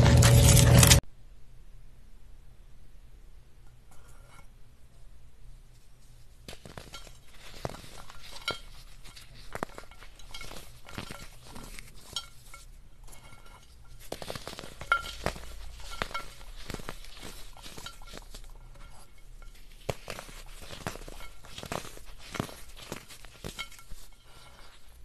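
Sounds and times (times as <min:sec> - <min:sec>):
chalk crunching: 0:05.8 - 0:25.0
pieces clinking against bowl: 0:06.6 - 0:24.9.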